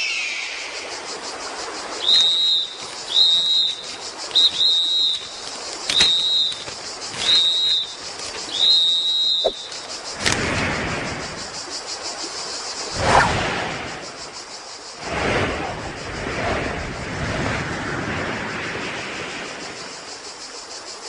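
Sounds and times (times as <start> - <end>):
short high whistle blasts: 2.0 - 3.8, 4.4 - 5.3, 6.0 - 6.6, 8.6 - 9.7.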